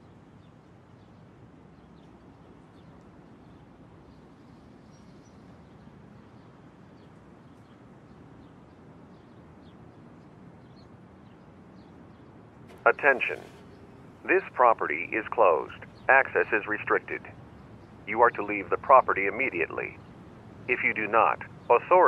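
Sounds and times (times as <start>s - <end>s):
low hum and hiss: 11.4s - 22.0s.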